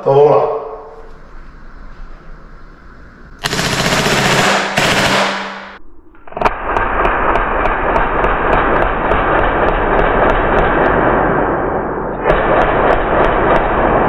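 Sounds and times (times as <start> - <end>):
air pistol rapid firing: 3.4 - 5.8, 6.6 - 14.0.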